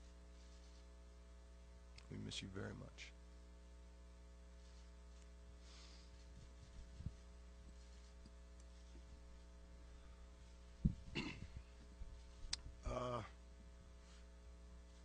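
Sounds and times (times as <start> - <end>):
low electrical hum: 0.0 - 15.0
microphone handling thump: 10.8 - 11.6.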